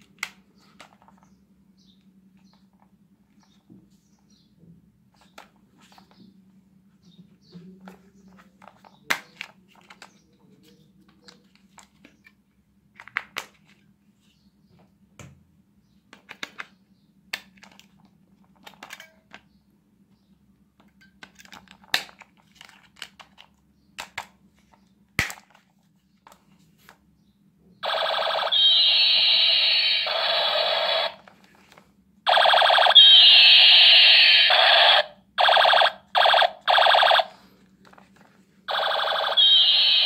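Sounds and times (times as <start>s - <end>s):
plastic clicks and rattles: 17.3s - 19.5s, 20.8s - 26.4s
siren-like toy sound effect: 27.8s - 31.2s, 32.3s - 37.3s, 38.7s - 40.0s.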